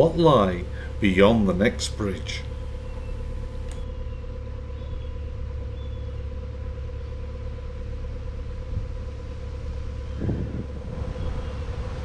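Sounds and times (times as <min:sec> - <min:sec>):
diesel engine rumbling: 0:00.0 - 0:12.0
faint steady hum: 0:00.0 - 0:12.0.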